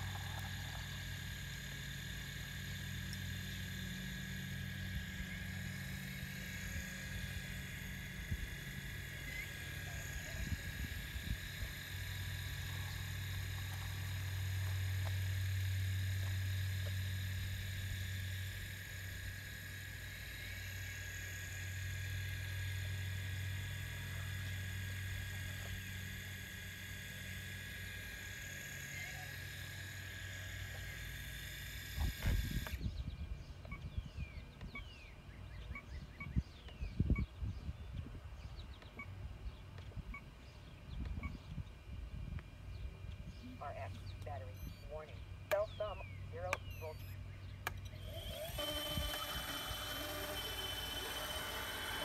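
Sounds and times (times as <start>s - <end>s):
hydraulic pump motor whining: 0.0s - 32.9s, 47.6s - 52.0s
birds chirping: 32.7s - 51.9s.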